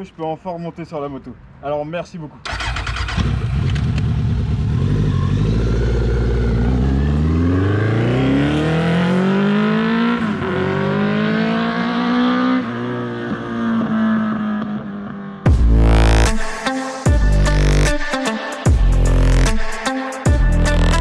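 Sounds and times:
motorcycle engine accelerating: 2.5s - 16.3s.

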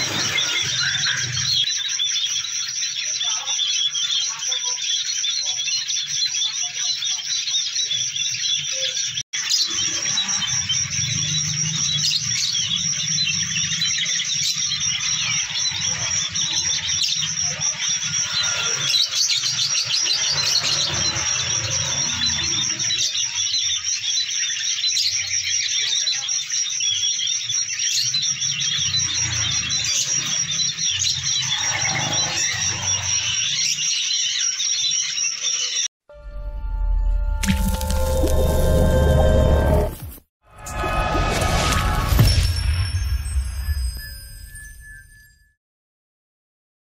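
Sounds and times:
high-pitched trill: 36.1s - 45.5s.

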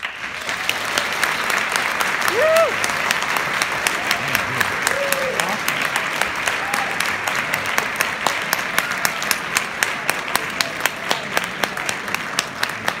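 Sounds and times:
audience applauding: 0.0s - 13.0s
close person clapping steadily: 0.0s - 13.0s.

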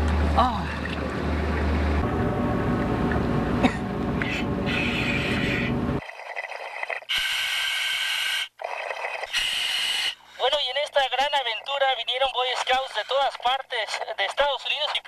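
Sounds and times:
hissing breaths through regulator: 4.2s - 10.4s.

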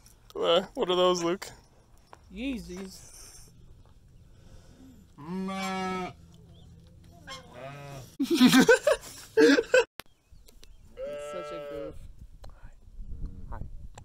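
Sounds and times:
farm animals bleating: 5.2s - 6.3s, 7.2s - 8.2s, 11.0s - 12.0s.

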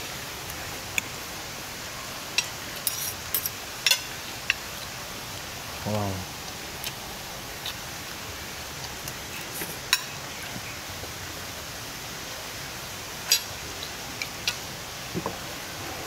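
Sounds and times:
steady background hiss: 0.0s - 16.0s
cutlery clinking on plates: 2.4s - 4.1s.

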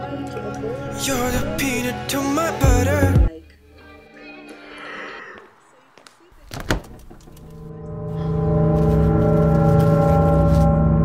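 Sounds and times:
low metallic gong-like drone: 7.6s - 11.0s.

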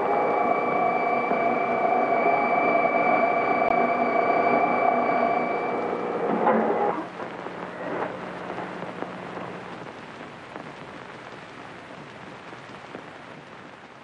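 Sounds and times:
crackling hiss: 0.0s - 14.0s
electrical hum: 0.0s - 14.0s
sharp electrical clicks: 5.6s - 13.9s.

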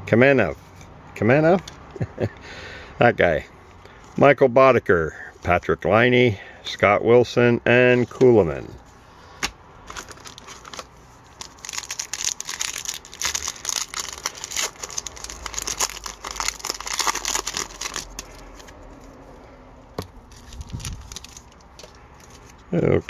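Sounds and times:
plastic wrapper crinkling: 9.8s - 19.1s, 20.0s - 22.6s.

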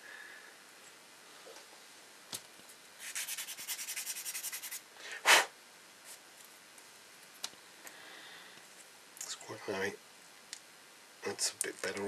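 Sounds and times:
sanding stick rubbing plastic: 3.0s - 4.8s
loud rush of air: 5.1s - 5.5s.

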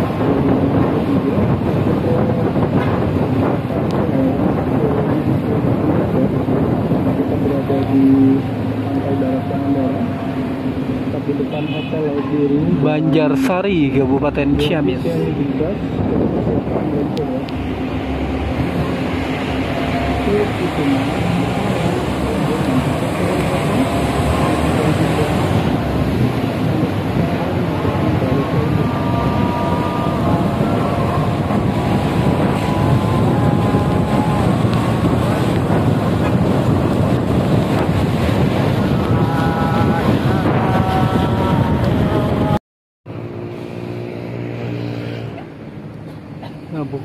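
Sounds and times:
bus engine and tyres rumbling: 0.0s - 47.0s
low droning hum: 14.2s - 37.4s.

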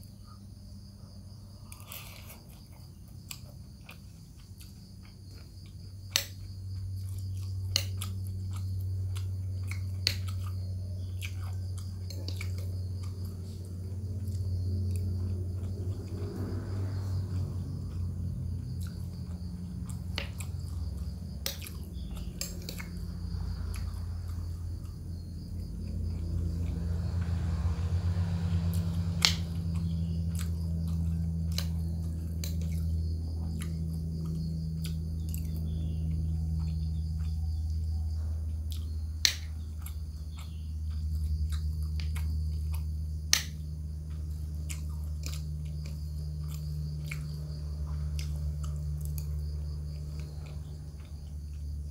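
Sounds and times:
steady low hum: 0.0s - 51.9s
person chewing: 1.6s - 16.5s, 17.3s - 26.9s, 38.7s - 42.8s, 44.1s - 49.3s.

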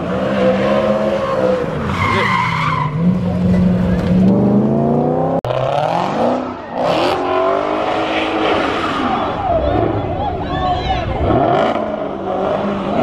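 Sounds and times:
tyres screeching on pavement: 0.0s - 4.1s
car engine revving hard: 4.1s - 9.2s, 11.2s - 13.0s.

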